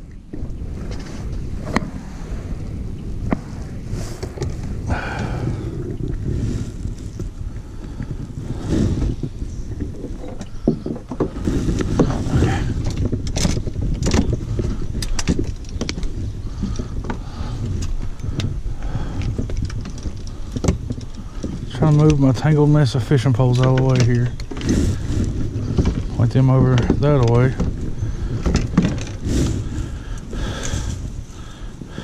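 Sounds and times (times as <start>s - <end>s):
steady low rumble: 0.0s - 32.0s
clicks and knocks on kayak hull: 8.9s - 22.6s, 23.5s - 29.7s.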